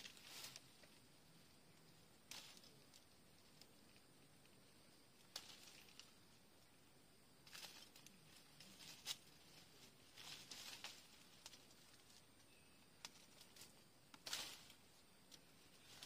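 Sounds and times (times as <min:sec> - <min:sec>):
rustling of tree leaves: 0:00.0 - 0:16.0.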